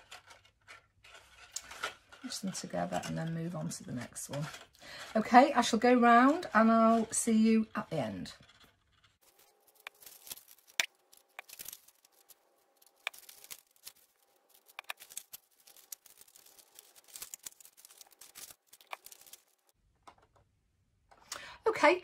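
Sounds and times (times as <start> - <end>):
cardstock clicks and rustles: 8.5 - 20.4.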